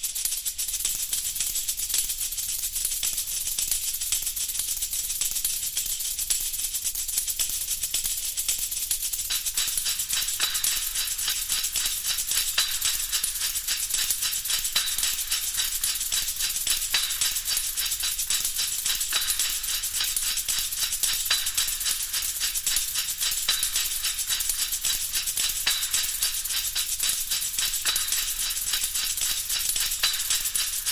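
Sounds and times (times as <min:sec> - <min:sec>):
static hiss with crackling: 0:09.2 - 0:30.9.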